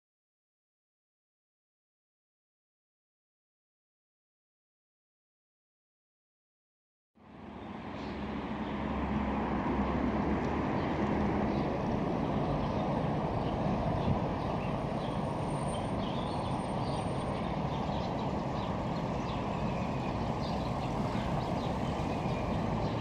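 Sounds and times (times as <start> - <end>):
rumble of passing cars: 7.2 - 23.0.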